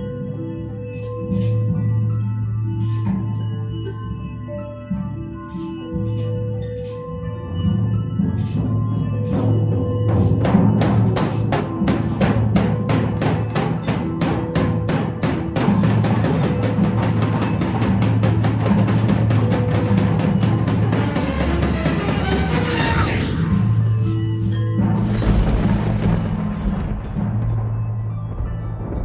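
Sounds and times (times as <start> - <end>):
drum beaten with sticks: 9.4 - 23.8, 24.8 - 29.0.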